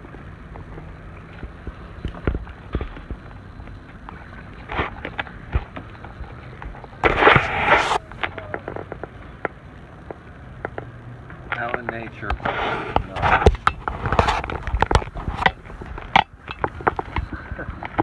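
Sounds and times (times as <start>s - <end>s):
loud rush of noise: 6.8s - 11.2s
sharp knocks and clicks: 8.2s - 18.0s.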